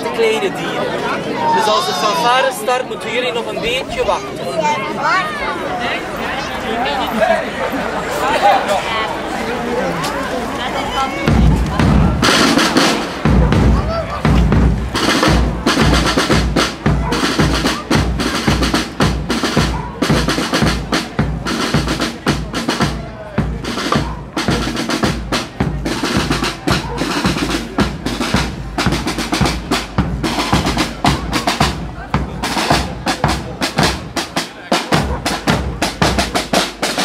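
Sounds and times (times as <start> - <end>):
snare and bass drums march beat: 11.2 - 37.0.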